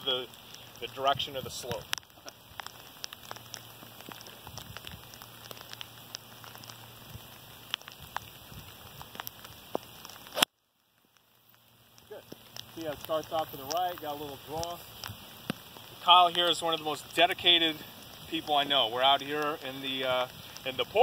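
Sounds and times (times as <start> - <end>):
rain pattering: 0.0 - 21.0.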